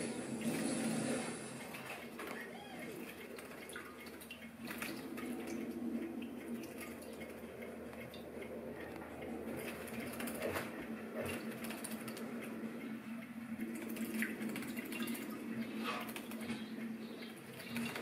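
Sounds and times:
steady low hum: 0.0s - 18.0s
bird splashing in water: 0.4s - 5.6s.

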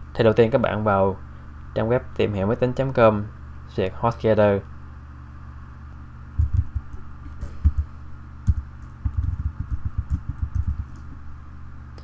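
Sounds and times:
typing on computer keyboard: 8.5s - 11.0s.

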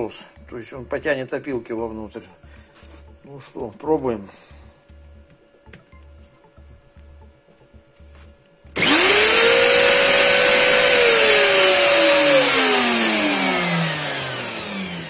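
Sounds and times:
router motor whining: 8.8s - 15.0s.

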